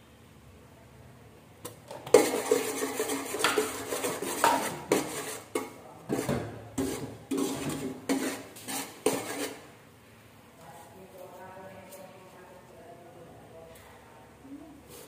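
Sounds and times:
metal spoon scraping pot: 1.9 - 9.7.

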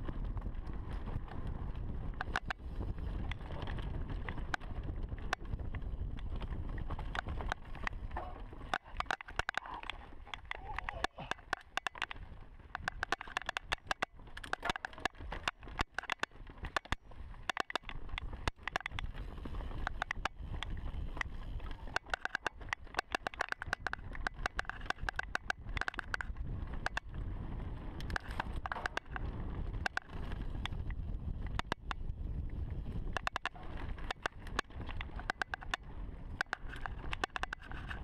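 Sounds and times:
mountain bike rumble on dirt: 0.0 - 38.0
sharp clicks: 2.1 - 2.6, 8.6 - 19.1, 19.8 - 27.1, 33.0 - 38.0.

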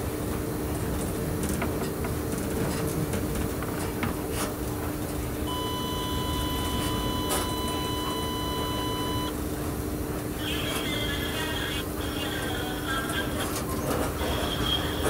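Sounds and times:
electric train hum and rumble: 0.0 - 15.0
continuous electronic beep: 5.5 - 9.4.

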